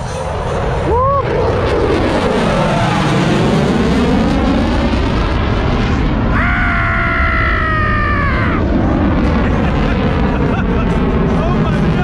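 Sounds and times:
aircraft roar passing over: 0.0 - 12.0
high whine: 5.0 - 11.3.

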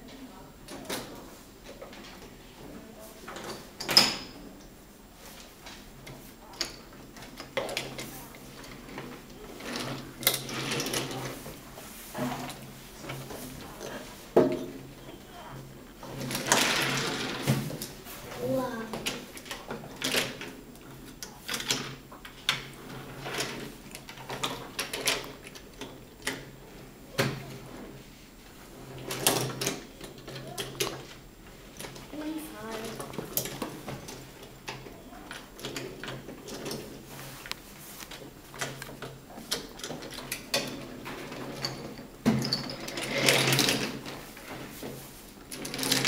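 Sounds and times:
objects knocking and clattering: 12.1 - 14.9, 38.1 - 46.0.

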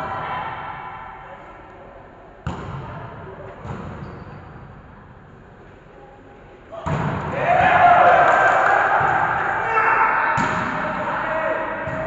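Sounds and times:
volleyball struck hard: 10.4 - 10.9.

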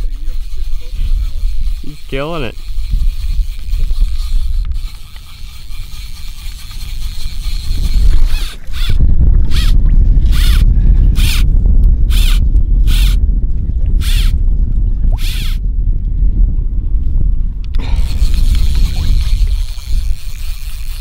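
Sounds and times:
fly line zipping through rod guides: 0.0 - 10.6, 12.1 - 13.2, 17.9 - 21.0
wind buffeting microphone: 0.0 - 21.0.

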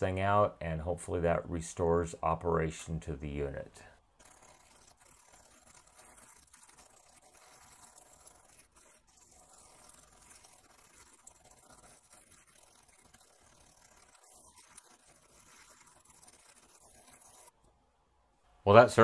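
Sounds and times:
wire brush scrubbing metal: 4.2 - 17.5.

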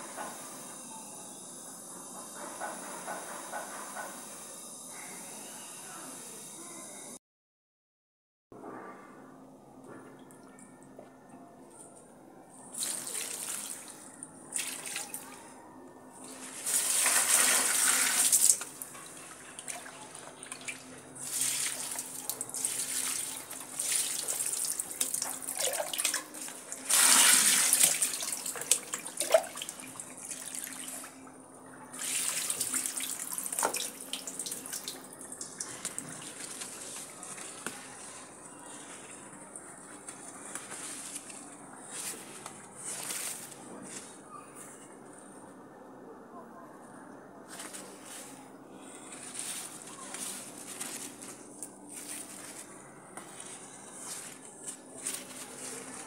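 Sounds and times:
water splashing onto plants: 16.5 - 18.8, 19.6 - 31.0, 32.0 - 36.8.

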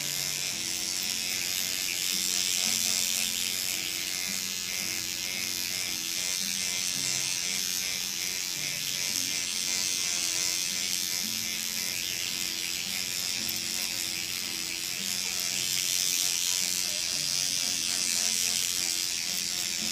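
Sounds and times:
derma pen motor buzz: 0.0 - 19.9.

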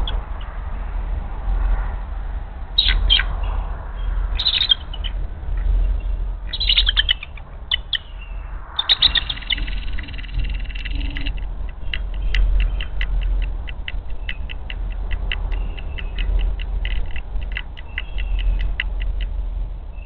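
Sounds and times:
steady low hum: 0.0 - 20.0
eagle chattering calls: 6.5 - 8.1, 8.8 - 19.4.

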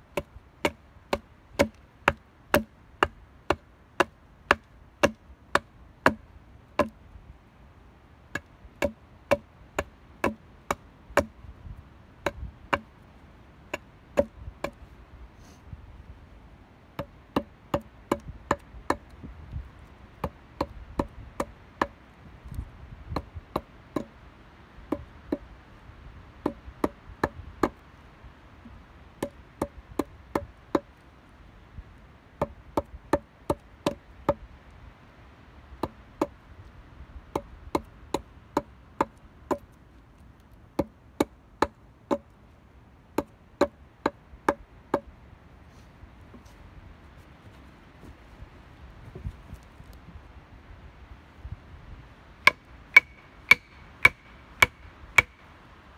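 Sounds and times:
wood being chopped: 0.2 - 6.2, 6.8 - 7.0, 8.3 - 11.4, 12.2 - 12.9, 13.7 - 14.8, 17.0 - 19.1, 20.2 - 22.0, 23.1 - 24.2, 24.9 - 25.5, 26.4 - 27.8, 29.2 - 30.9, 32.4 - 34.4, 37.3 - 39.7, 40.8 - 42.3, 43.2 - 45.1, 52.4 - 55.4.

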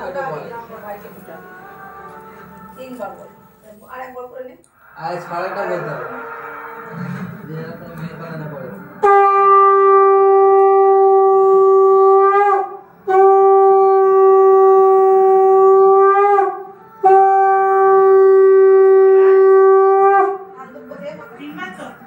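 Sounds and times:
conch shell blasts: 8.8 - 20.5.

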